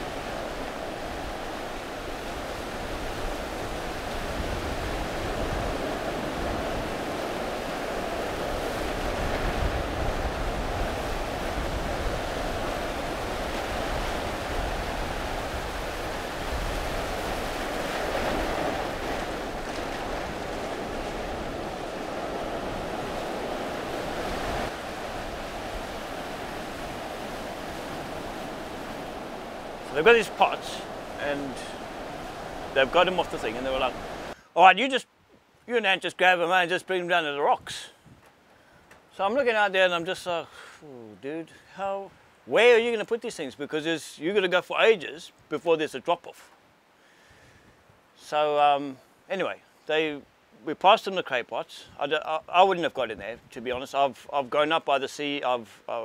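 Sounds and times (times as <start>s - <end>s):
wind rumbling on microphone: 0.0s - 30.0s
ocean surf over reef: 0.0s - 35.0s, 46.3s - 53.1s.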